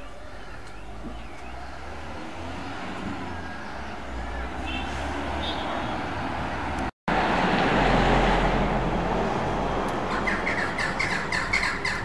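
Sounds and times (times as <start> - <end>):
road traffic noise: 0.0 - 12.0
sparrow chirping: 10.1 - 12.0.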